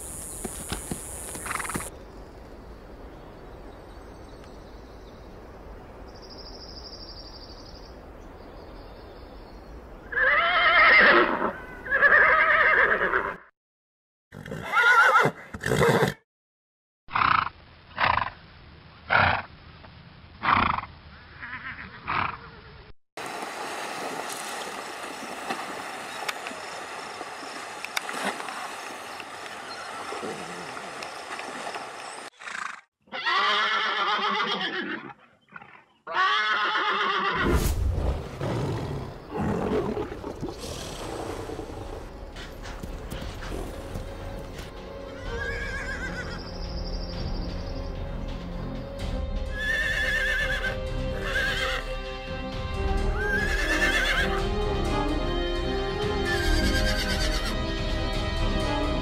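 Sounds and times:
horses squealing: 0:10.1 - 0:13.4, 0:14.4 - 0:16.2, 0:32.4 - 0:37.4, 0:45.2 - 0:46.4, 0:49.6 - 0:51.8, 0:53.2 - 0:54.2, 0:56.3 - 0:57.5
horses splashing through water: 0:23.2 - 0:32.3, 0:39.2 - 0:44.7.

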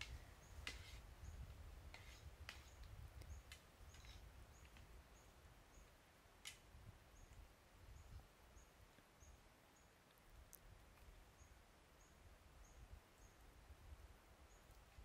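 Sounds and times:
faint clicks: 0:06.4 - 0:06.7, 0:10.0 - 0:11.2.

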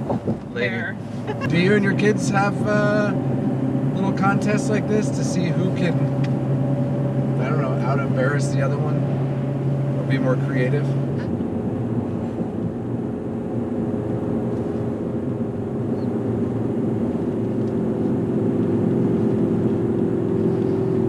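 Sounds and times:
truck engine and road drone: 0:00.0 - 0:21.0.

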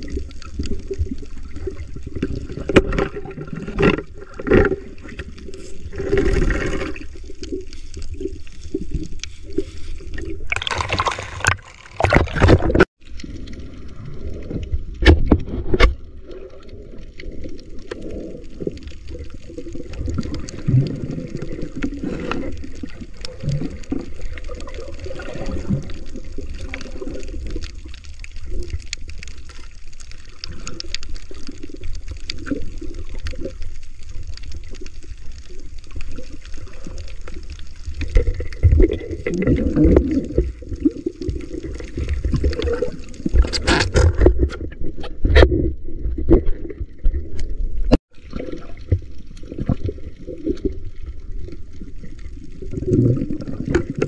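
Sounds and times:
rushes of water noise: 0:00.0 - 0:54.0
muffled underwater gurgling: 0:35.5 - 0:54.0.

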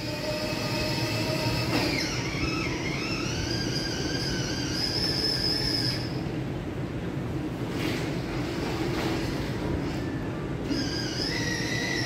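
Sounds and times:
electric toy motor whining: 0:00.0 - 0:06.1, 0:10.7 - 0:12.0.

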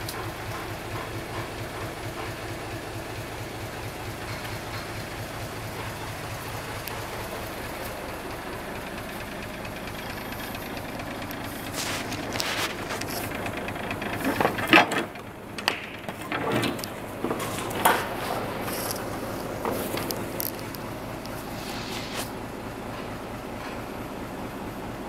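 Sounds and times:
diesel truck engine idling: 0:00.0 - 0:25.0
sharp clicks and rustles: 0:11.2 - 0:22.4.

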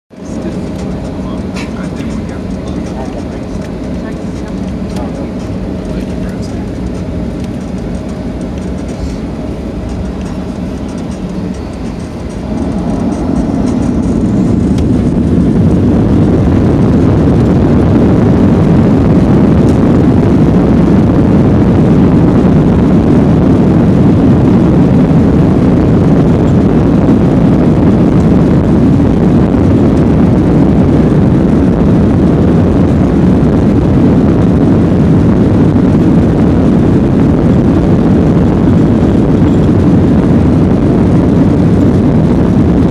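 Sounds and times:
jet engines spooling up: 0:00.2 - 0:21.6.

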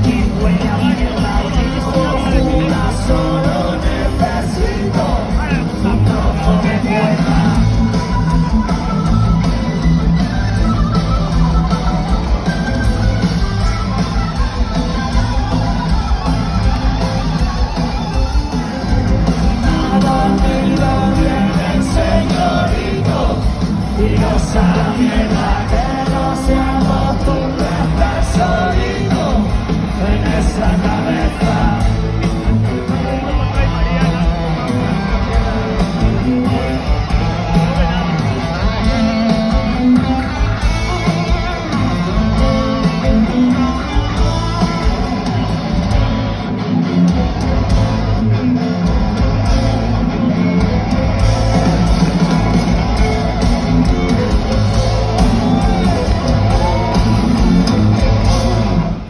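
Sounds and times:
person singing: 0:00.0 - 0:08.0, 0:19.5 - 0:34.3
bass guitar: 0:00.0 - 0:59.0
drums: 0:00.0 - 0:59.0
electric guitar: 0:00.0 - 0:59.0.

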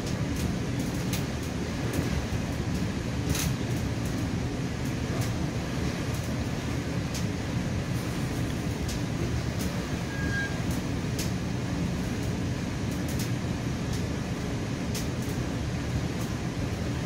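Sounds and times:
train rumbling: 0:00.0 - 0:17.0
high squeal: 0:09.9 - 0:10.6.

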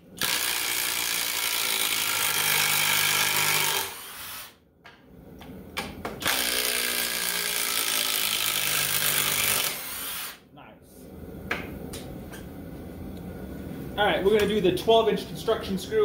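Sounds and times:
impact driver hammering screw: 0:00.2 - 0:04.5, 0:06.2 - 0:10.4.

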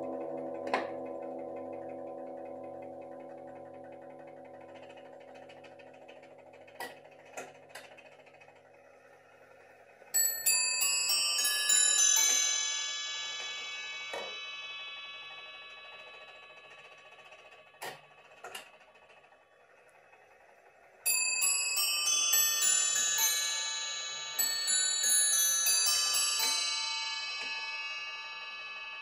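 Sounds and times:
clock knocks and clicks: 0:00.0 - 0:05.9
clock chiming on bells: 0:00.0 - 0:07.2, 0:10.1 - 0:18.8, 0:21.0 - 0:29.0.

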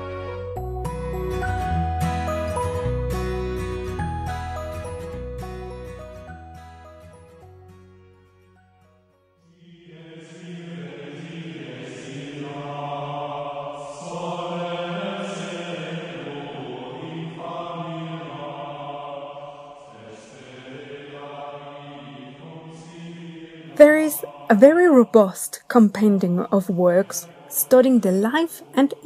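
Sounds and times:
tinkling tune: 0:00.6 - 0:07.6
person chanting: 0:09.5 - 0:29.0.

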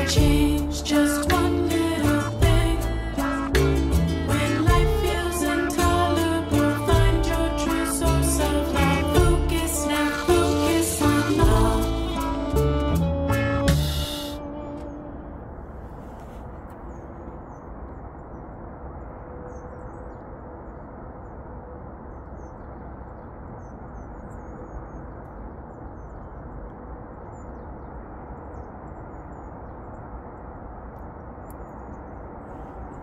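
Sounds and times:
low background rush: 0:00.0 - 0:33.0
small songbirds chirping: 0:22.0 - 0:33.0.

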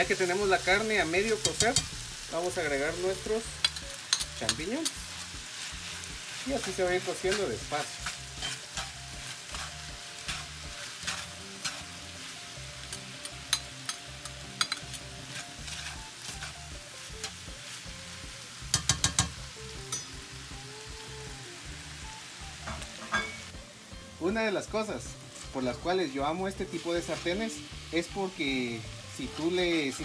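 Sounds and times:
meat sizzling in a skillet: 0:00.0 - 0:30.0
metal spatula scraping a pan: 0:03.6 - 0:12.2, 0:13.5 - 0:17.4, 0:29.2 - 0:30.0.

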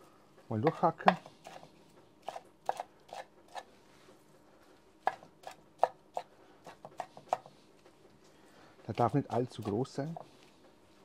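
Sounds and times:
knife chopping on wooden board: 0:00.6 - 0:01.6, 0:05.0 - 0:07.5.

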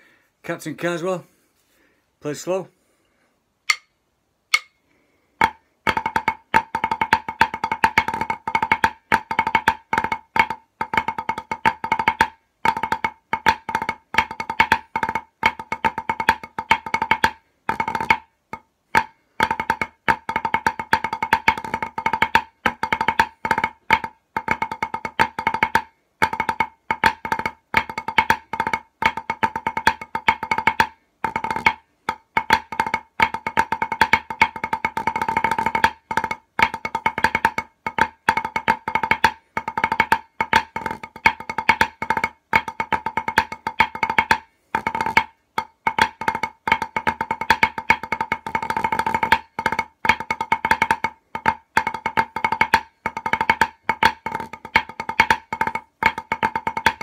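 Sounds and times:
drumsticks on practice pad: 0:03.6 - 0:04.8, 0:05.4 - 0:57.0.

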